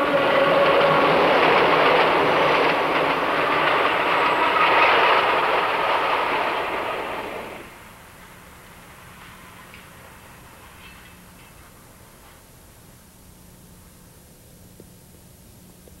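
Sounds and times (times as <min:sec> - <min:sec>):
train wheels clattering on rails: 0:00.0 - 0:12.5.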